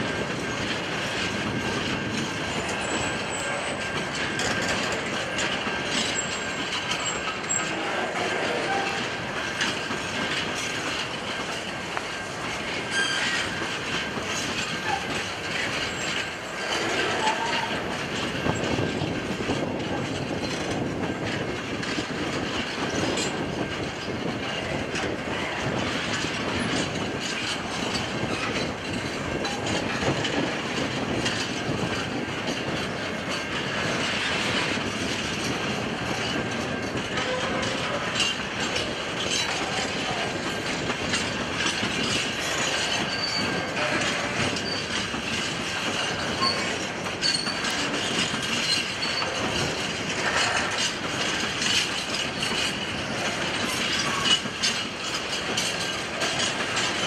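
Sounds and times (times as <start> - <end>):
train wheels clattering on rails: 0.0 - 57.0
high wheel squeals: 12.8 - 13.7, 16.7 - 17.8, 42.1 - 43.8, 46.1 - 47.8.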